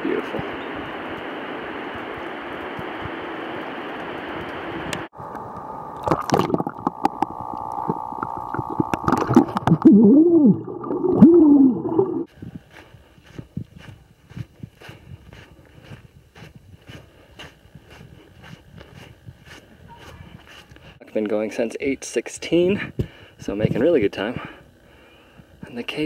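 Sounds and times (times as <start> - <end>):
muffled rumbling and gurgling: 4.5 - 12.7
footsteps on dirt trail: 12.3 - 21.0.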